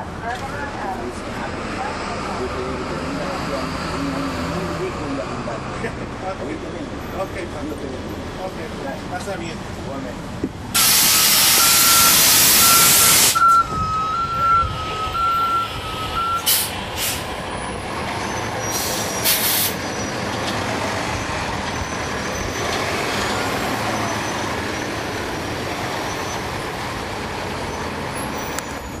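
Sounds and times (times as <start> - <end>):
diesel bus engine running: 0.0 - 29.0
compressed air hissing: 10.8 - 13.4, 16.4 - 17.3, 18.7 - 19.8
warning beeps: 11.1 - 16.5.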